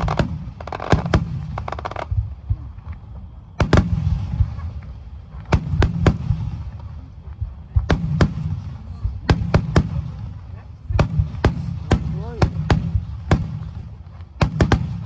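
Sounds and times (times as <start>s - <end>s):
firework shells bursting: 0.0s - 7.0s.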